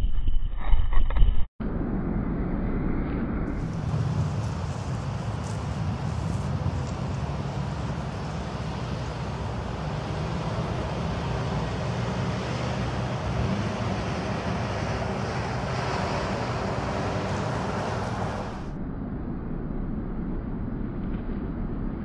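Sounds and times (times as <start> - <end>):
road traffic noise: 3.5 - 18.8.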